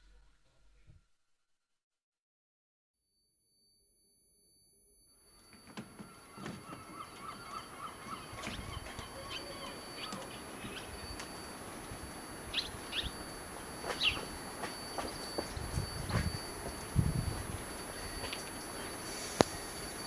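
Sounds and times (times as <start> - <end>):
faint outdoor background: 3.4 - 20.0
small birds chirping: 6.0 - 11.3, 12.5 - 13.2, 13.9 - 14.3.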